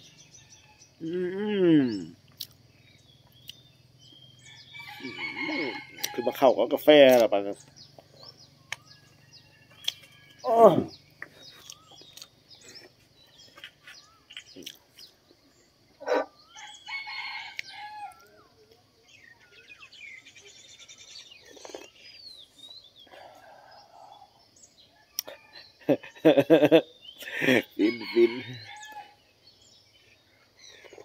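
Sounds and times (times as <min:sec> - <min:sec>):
small birds chirping: 0:00.0 - 0:31.0
rooster crowing: 0:04.5 - 0:06.6, 0:16.6 - 0:18.4, 0:27.8 - 0:29.2.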